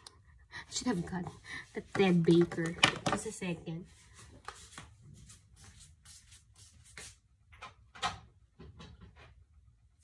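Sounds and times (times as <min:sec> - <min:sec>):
toiletry bottles clicking and knocking: 0:01.9 - 0:03.3.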